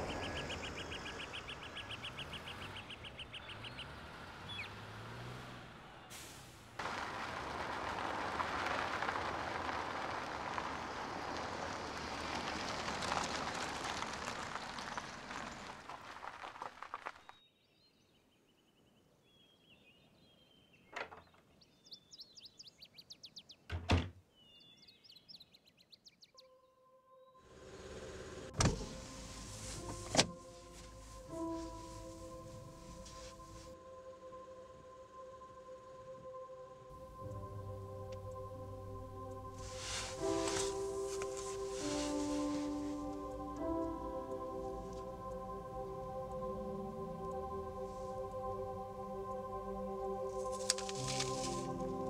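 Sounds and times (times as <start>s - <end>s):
small birds chirping: 0.0s - 4.9s, 17.1s - 23.7s.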